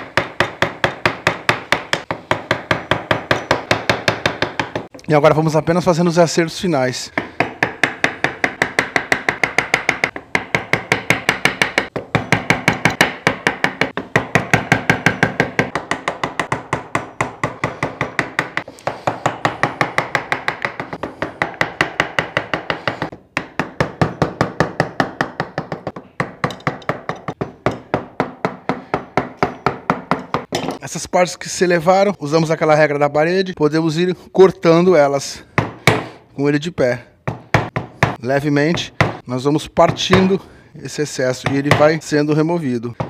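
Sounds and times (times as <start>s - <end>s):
wooden mallet striking chisel: 0.0s - 5.0s, 7.2s - 30.8s, 37.2s - 39.2s.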